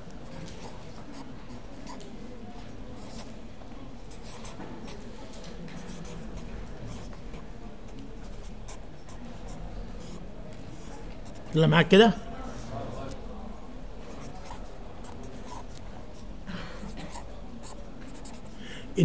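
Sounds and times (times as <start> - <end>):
marker pen scratching on paper: 0.3 - 2.1, 3.0 - 3.3, 4.1 - 5.0, 5.7 - 11.6, 14.0 - 18.6.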